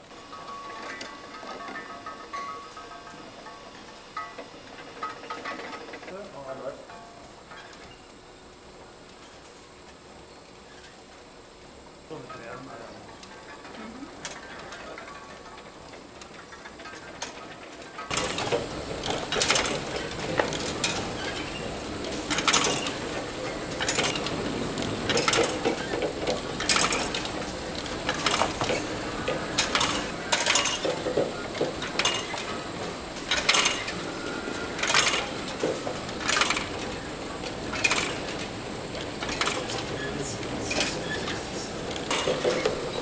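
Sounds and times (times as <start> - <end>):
machinery rattling: 0.0 - 9.9, 12.0 - 43.0
faint high whine: 0.0 - 25.1.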